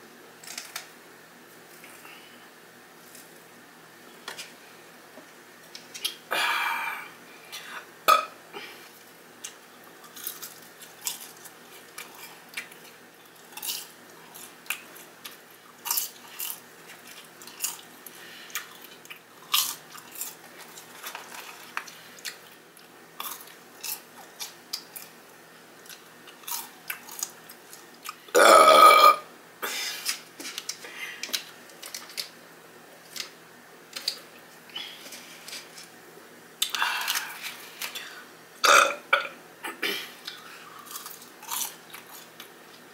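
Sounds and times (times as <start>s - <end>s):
crunching and chewing food: 8.6s - 29.1s, 40.2s - 42.9s
loud burp: 28.3s - 29.3s, 38.6s - 39.4s.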